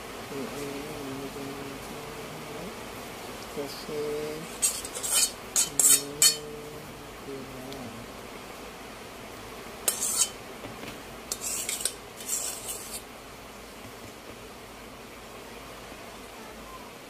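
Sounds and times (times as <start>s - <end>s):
metal spoon scraping glass bowl: 4.5s - 6.4s, 9.9s - 10.4s, 11.3s - 13.0s.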